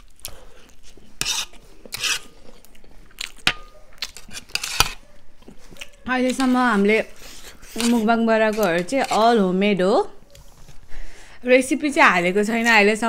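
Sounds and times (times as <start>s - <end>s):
noisy mouthfuls eating: 0.0s - 8.8s.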